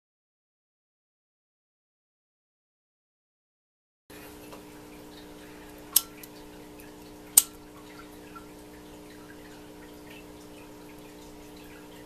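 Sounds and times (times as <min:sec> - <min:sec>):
low electrical hum: 0:04.1 - 0:12.0.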